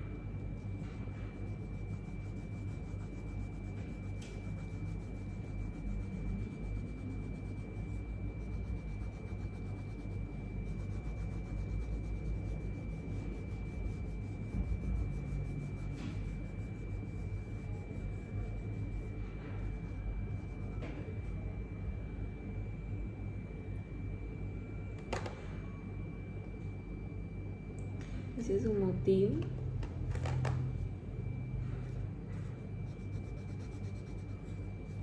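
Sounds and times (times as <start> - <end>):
faint high whine: 0.0 - 35.0
pencil shading on paper: 0.5 - 20.8, 31.8 - 35.0.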